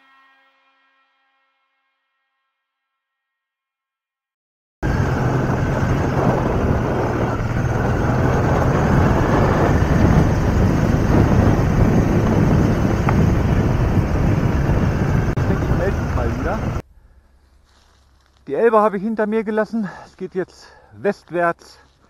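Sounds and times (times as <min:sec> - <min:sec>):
motorcycle engine running: 0:04.8 - 0:16.8
wind noise on microphone: 0:04.8 - 0:16.8.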